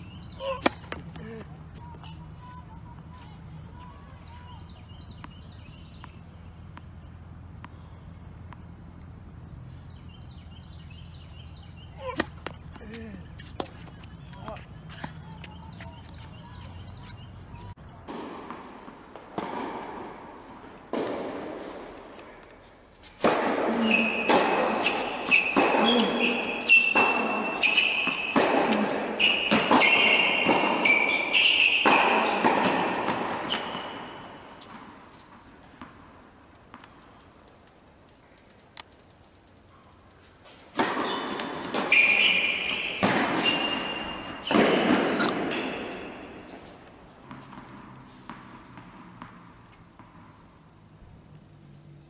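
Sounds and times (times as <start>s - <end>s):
tennis ball hits and bounces: 0.0s - 52.0s
short high squeaks: 23.0s - 35.4s, 40.6s - 46.6s.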